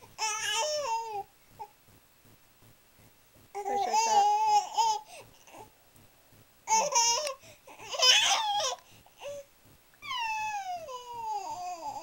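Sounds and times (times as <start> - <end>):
baby babbling: 0.2 - 1.3, 3.6 - 5.7, 6.7 - 9.4, 10.0 - 12.0.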